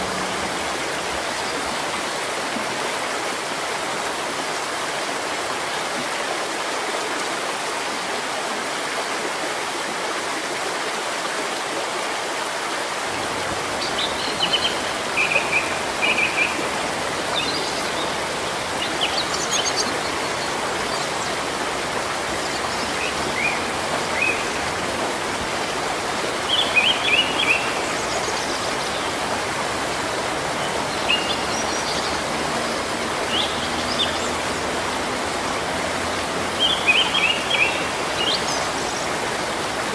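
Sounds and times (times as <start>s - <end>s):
rain falling on foliage: 0.0s - 39.9s
birds chirping: 13.2s - 39.9s.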